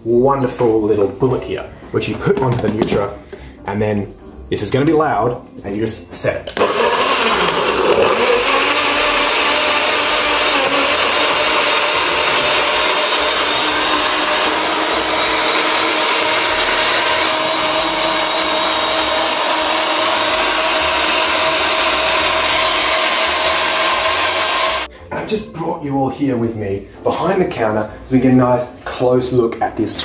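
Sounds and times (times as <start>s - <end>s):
blender motor whining: 6.6s - 24.9s.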